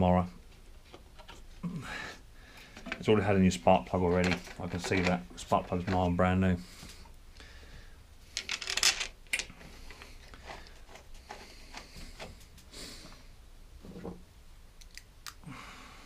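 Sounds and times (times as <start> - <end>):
rustling and scraping: 0.4 - 1.6, 2.5 - 7.1, 8.3 - 14.3.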